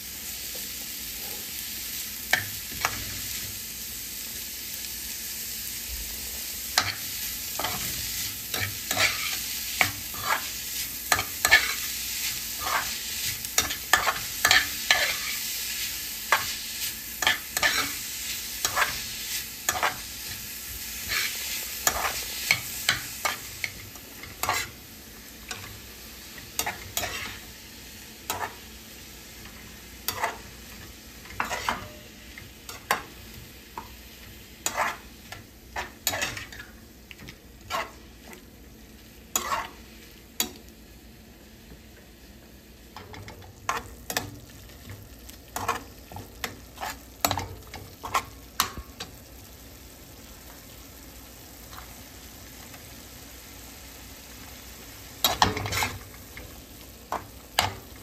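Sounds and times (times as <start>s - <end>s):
onions sizzling in oil: 0.0s - 58.0s
metal spatula scraping pan: 7.6s - 11.9s, 17.2s - 18.0s, 24.2s - 24.8s, 26.6s - 27.4s, 30.1s - 30.5s, 31.3s - 32.1s, 34.6s - 36.8s, 37.6s - 38.4s, 39.3s - 39.8s, 55.3s - 56.0s.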